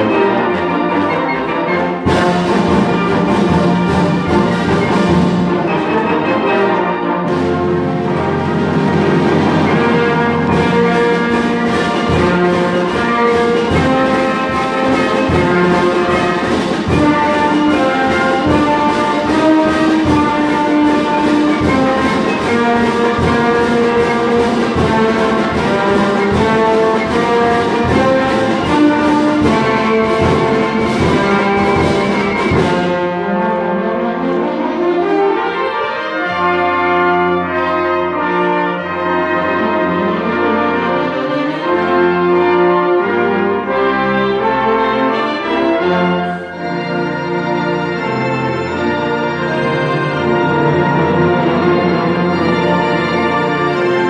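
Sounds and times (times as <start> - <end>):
wind orchestra playing carol: 0.0 - 54.0
percussion beat: 7.3 - 33.1.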